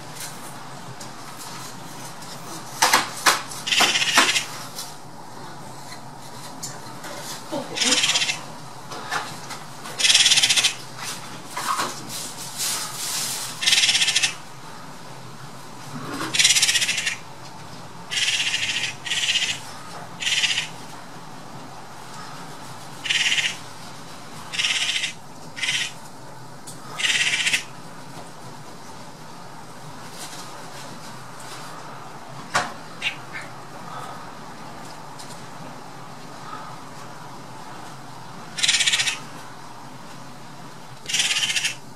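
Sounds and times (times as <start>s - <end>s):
magpies chattering: 3.6s - 4.6s, 7.6s - 8.5s, 10.0s - 10.9s, 13.6s - 14.5s, 16.3s - 17.3s, 18.1s - 20.8s, 23.0s - 23.6s, 24.5s - 26.0s, 27.0s - 27.7s, 32.9s - 34.1s, 38.5s - 39.3s, 41.0s - 41.9s.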